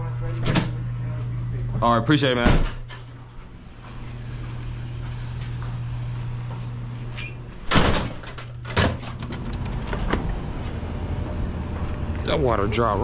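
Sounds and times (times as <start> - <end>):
steady low hum: 0.0 - 13.0
door opening and shutting: 0.4 - 0.8, 2.4 - 4.2, 6.2 - 10.8.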